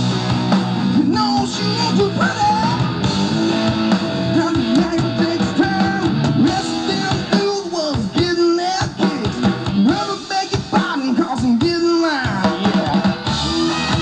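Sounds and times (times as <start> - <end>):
rock band playing live: 0.0 - 14.0
lead singer singing: 0.9 - 3.0, 4.2 - 13.2.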